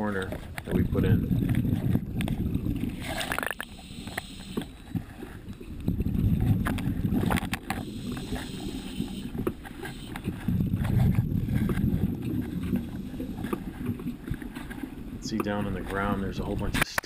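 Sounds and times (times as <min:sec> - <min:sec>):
exhaled air bubbling underwater: 0:00.0 - 0:16.8
air hissing: 0:03.6 - 0:05.1, 0:07.8 - 0:10.4.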